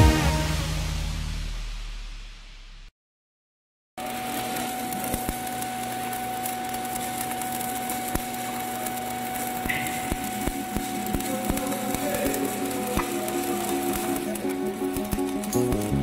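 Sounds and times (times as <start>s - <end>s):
welding arc crackling hiss: 4.0s - 16.0s.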